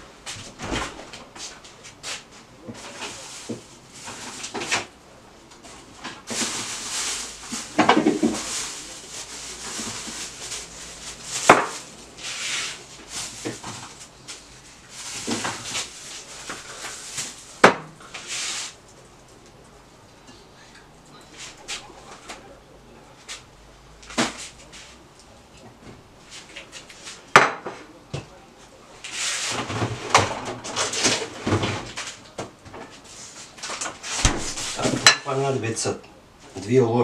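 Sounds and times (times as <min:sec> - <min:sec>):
plastic bags rustling: 0:00.4 - 0:19.2, 0:29.0 - 0:35.6.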